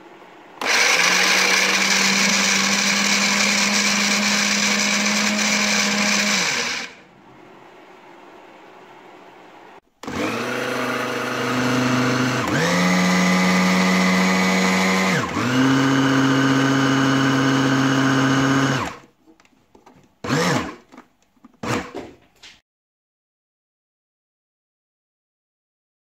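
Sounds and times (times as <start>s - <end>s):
food processor motor whine: 0.6s - 7.0s, 10.0s - 19.1s, 20.2s - 20.8s.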